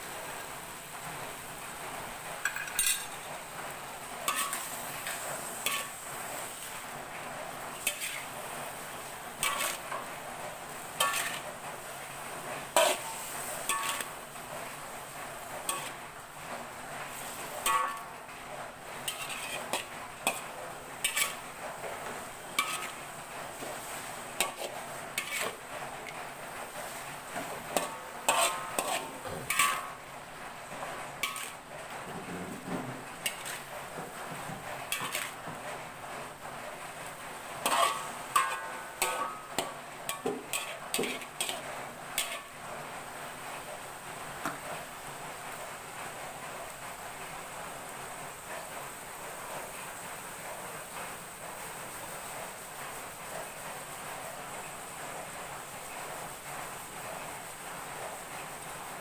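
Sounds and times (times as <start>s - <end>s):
metal spatula scraping a wok: 2.5s - 3.3s, 4.2s - 16.2s, 17.0s - 18.2s, 19.0s - 30.0s, 30.8s - 31.6s, 32.3s - 35.5s, 37.5s - 42.6s.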